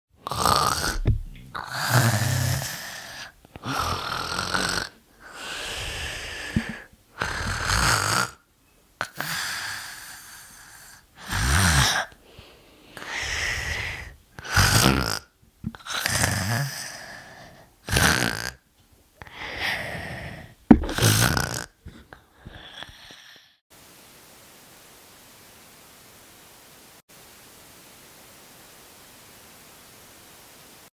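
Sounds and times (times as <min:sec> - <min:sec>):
person snoring: 0:00.2 - 0:08.4, 0:09.0 - 0:12.2, 0:13.0 - 0:18.6, 0:19.2 - 0:23.6
faint steady hiss: 0:00.2 - 0:22.4, 0:23.7 - 0:30.9.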